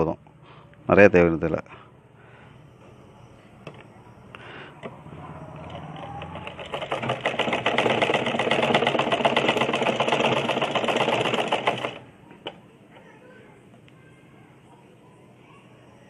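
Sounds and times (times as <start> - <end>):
sewing machine needle clatter: 5.6 - 12.0.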